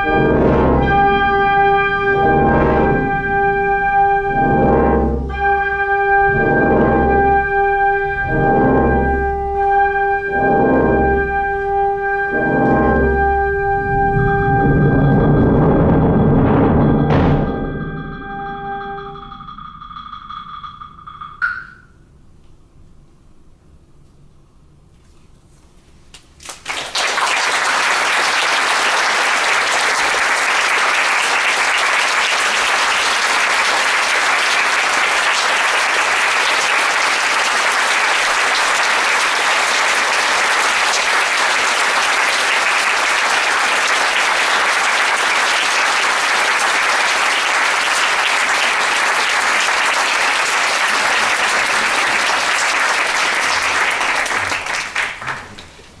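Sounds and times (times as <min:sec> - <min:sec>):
audience applauding: 0:26.4 - 0:56.0.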